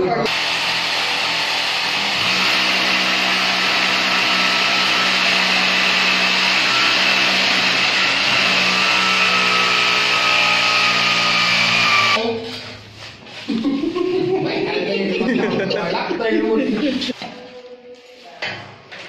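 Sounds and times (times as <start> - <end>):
electric motor whirring: 0.3 - 12.2.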